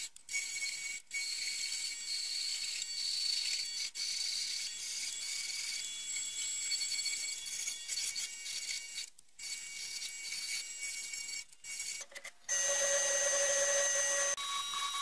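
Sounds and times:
wood lathe high whine: 11.7s - 15.0s.

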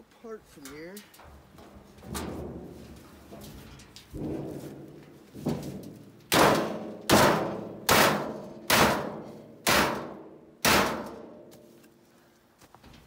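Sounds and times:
hammer banging on sheet steel: 4.1s - 11.6s.

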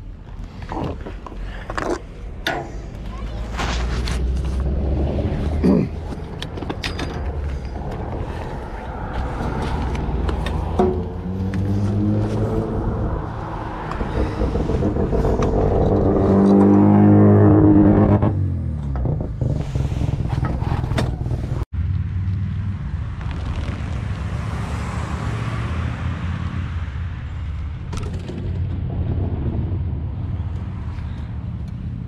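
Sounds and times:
vehicle passing on road: 2.8s - 32.0s
vehicle engine running close by: 7.4s - 32.0s.

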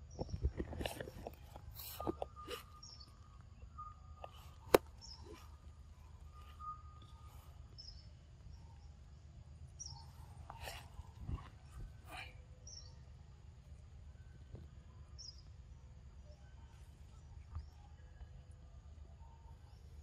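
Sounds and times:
monkey eating soft fruit: 0.0s - 3.5s
birds chirping: 0.0s - 20.0s
faint insect tone: 1.4s - 20.0s.

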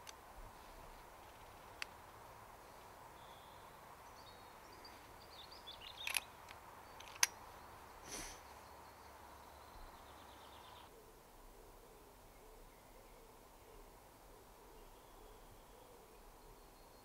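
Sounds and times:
small birds chirping: 0.0s - 11.0s
sharp clicks: 1.2s - 2.0s, 5.9s - 7.4s.

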